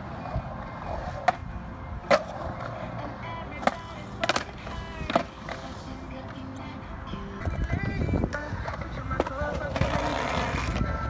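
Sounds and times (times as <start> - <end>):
skateboard wheels rolling on concrete: 0.0 - 11.0
skateboard clacking on surface: 3.6 - 5.9, 7.4 - 11.0.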